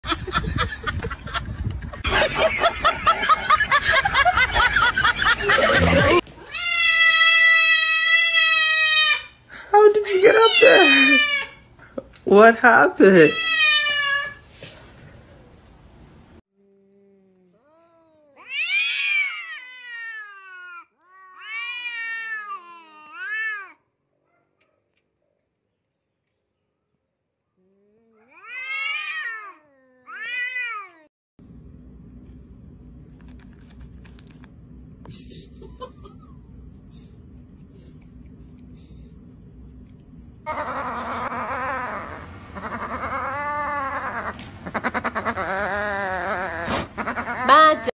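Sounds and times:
high-pitched giggling laughter: 0:00.0 - 0:06.2
cats yowling: 0:05.5 - 0:09.4, 0:10.3 - 0:11.6, 0:13.3 - 0:14.4, 0:17.6 - 0:23.8, 0:28.0 - 0:31.1, 0:40.4 - 0:47.9.

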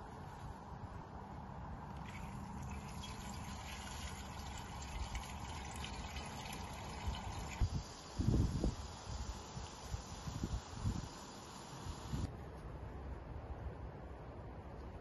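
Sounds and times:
water filling glass vase: 0:02.0 - 0:07.6.

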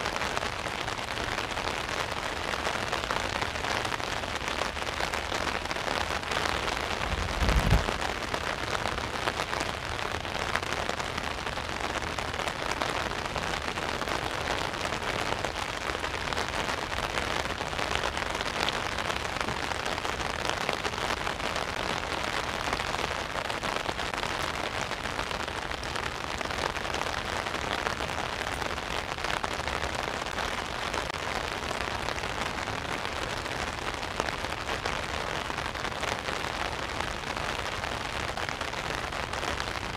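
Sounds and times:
rain pattering on umbrella: 0:00.0 - 0:39.9
low thump: 0:07.0 - 0:08.0.

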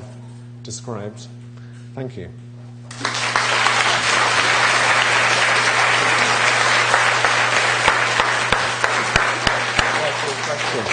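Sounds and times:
audience applauding: 0:02.9 - 0:10.9.

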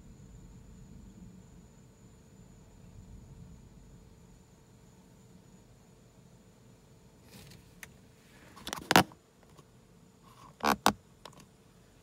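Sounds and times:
faint steady hiss: 0:00.0 - 0:12.0
camera handling knocks and scrapes: 0:08.6 - 0:09.6.

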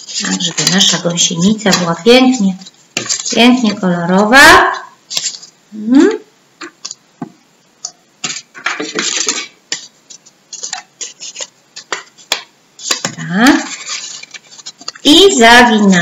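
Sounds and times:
paper rustling: 0:00.0 - 0:04.3, 0:05.0 - 0:05.6, 0:08.2 - 0:16.0
paper tapping on tabletop: 0:11.8 - 0:13.2.

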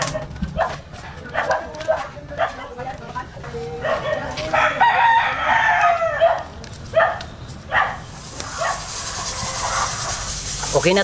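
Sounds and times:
dog barking: 0:00.0 - 0:02.8, 0:03.8 - 0:04.7, 0:06.1 - 0:08.8
rooster crowing: 0:04.4 - 0:06.4.

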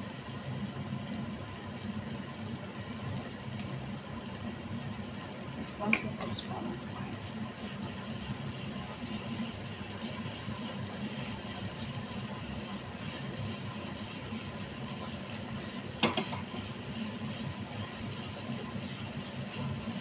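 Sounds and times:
steady low hum: 0:00.0 - 0:18.8
vegetables frying in a pan: 0:00.0 - 0:20.0
spatula stirring in a pan: 0:05.7 - 0:20.0.

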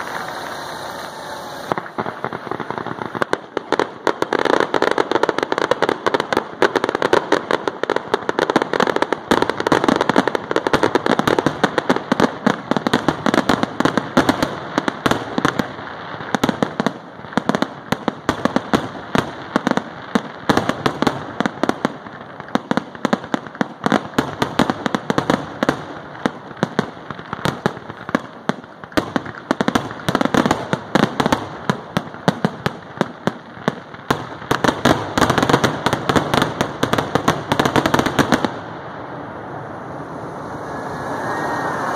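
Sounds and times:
steady rushing noise: 0:00.0 - 0:03.7, 0:38.6 - 0:41.9
fireworks bursting and crackling: 0:00.0 - 0:41.9.

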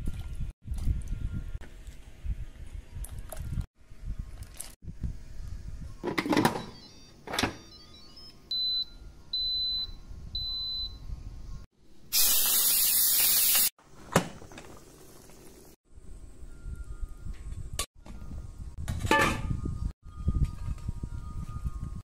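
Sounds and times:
loud steady hiss: 0:12.1 - 0:13.7.

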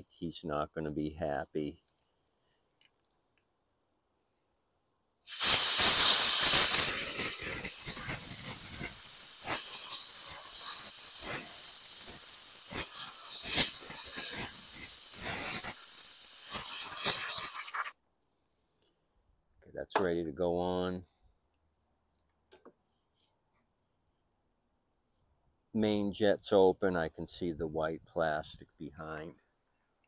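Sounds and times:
compressed air hissing: 0:05.3 - 0:17.9.

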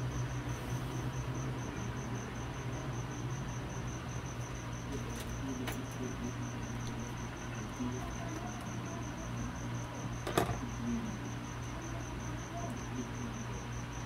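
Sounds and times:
cricket chirping: 0:00.0 - 0:14.0
multimeter knocking on table: 0:10.2 - 0:10.6.

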